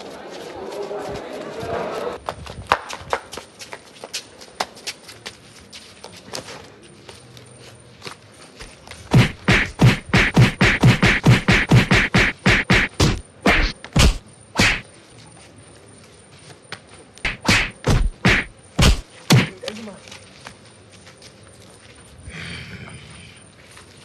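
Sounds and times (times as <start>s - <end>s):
hand blows on a body: 9.1s - 14.8s, 17.3s - 19.6s.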